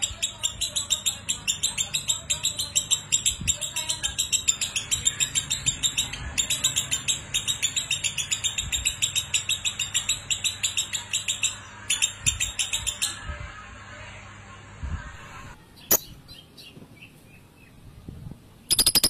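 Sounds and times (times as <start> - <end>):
bird chattering trill: 18.7 - 19.0.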